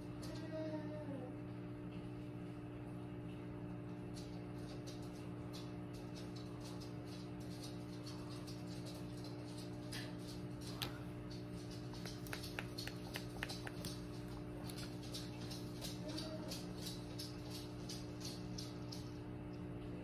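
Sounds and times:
steady low hum: 0.0s - 20.0s
faint small clicks and ticks: 3.8s - 19.7s.

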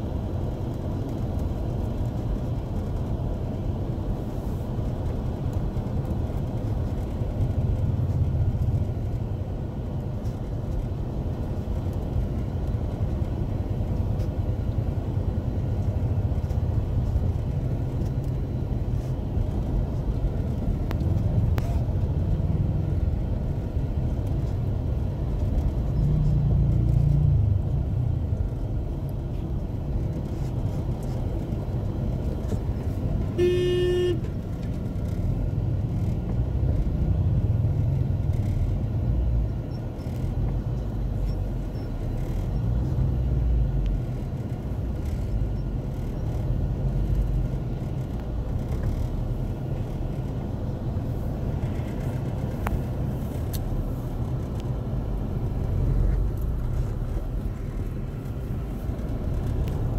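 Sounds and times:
car engine and road rumble: 0.0s - 59.9s
car horn toot: 33.4s - 34.3s.

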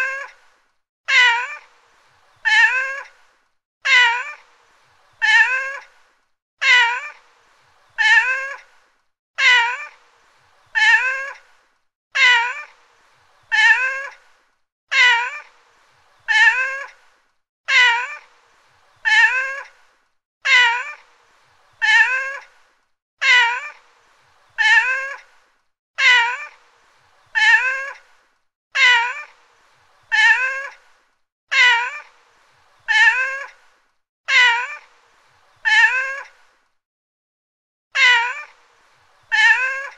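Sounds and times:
cat meowing: 0.0s - 0.3s, 1.1s - 1.6s, 2.4s - 3.1s, 3.9s - 4.4s, 5.2s - 5.8s, 6.6s - 7.1s, 8.0s - 8.6s, 9.4s - 9.9s, 10.8s - 11.4s, 12.2s - 12.7s, 13.5s - 14.2s, 14.9s - 15.5s, 16.3s - 16.9s, 17.7s - 18.2s, 19.0s - 19.7s, 20.4s - 21.0s, 21.8s - 22.4s, 23.2s - 23.7s, 24.6s - 25.2s, 26.0s - 26.6s, 27.4s - 28.0s, 28.8s - 29.3s, 30.1s - 30.7s, 31.5s - 32.1s, 32.9s - 33.5s, 34.3s - 34.8s, 35.6s - 36.3s, 38.0s - 38.5s, 39.3s - 39.9s.

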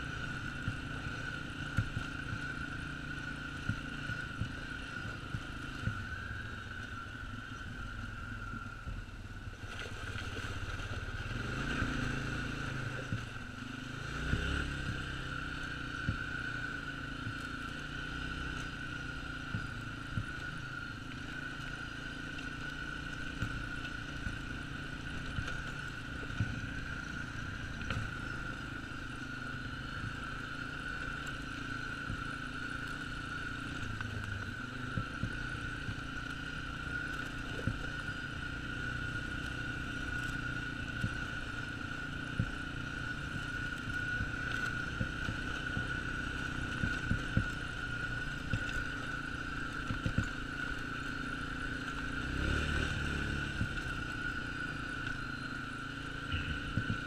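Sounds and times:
quad bike engine running: 0.0s - 57.0s
high whine: 42.4s - 57.0s.

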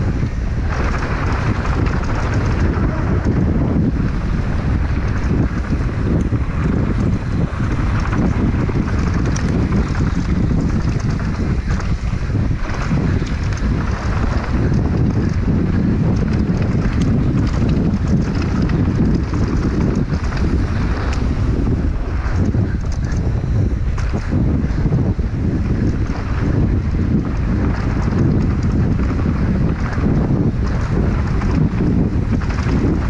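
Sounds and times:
bike rattles and clicks: 0.0s - 33.0s
tyres on dirt and gravel: 0.0s - 33.0s
wind buffeting microphone: 0.0s - 33.0s.

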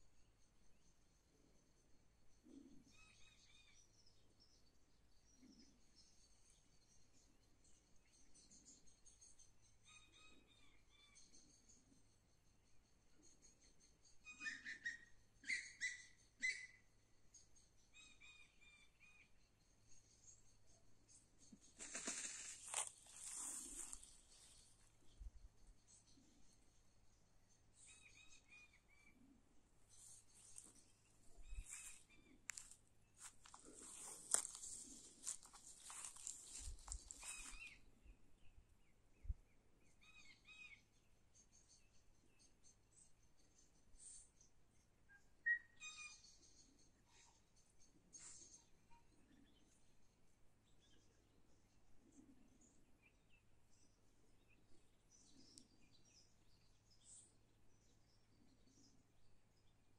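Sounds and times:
bird chirps: 2.4s - 32.7s, 35.2s - 49.9s
footsteps crunching dry grass: 21.8s - 24.8s, 31.4s - 37.8s.

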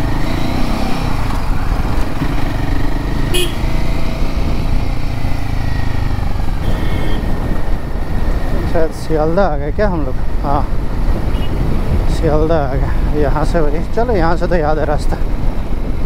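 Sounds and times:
motorcycle engine rumbling: 0.0s - 16.0s
horn beep: 3.3s - 3.6s, 6.6s - 7.4s.

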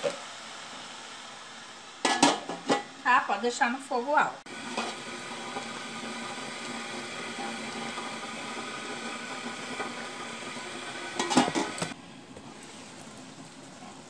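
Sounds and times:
metal lid clattering onto pot: 2.0s - 2.9s, 11.1s - 11.9s
water bubbling in a pot: 4.5s - 12.0s.

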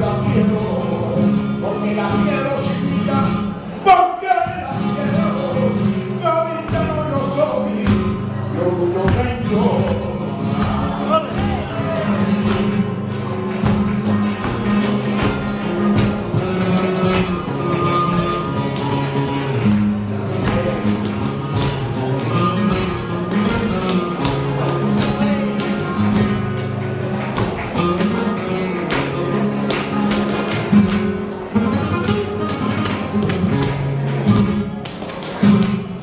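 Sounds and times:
man singing: 0.0s - 12.9s
flamenco guitar playing: 0.0s - 36.0s
rhythmic hand-clapping: 8.9s - 36.0s.

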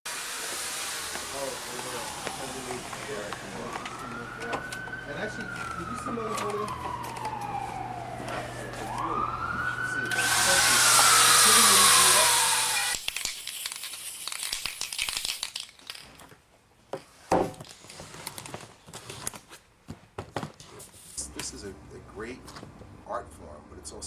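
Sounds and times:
loud hissing rush: 0.1s - 3.6s, 10.2s - 12.7s
siren wailing: 1.2s - 13.0s.

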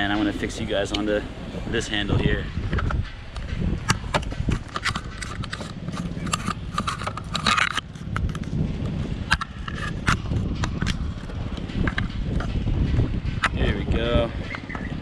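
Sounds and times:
low rumble: 0.0s - 15.0s
camera handling clicks and scrapes: 2.6s - 12.6s.

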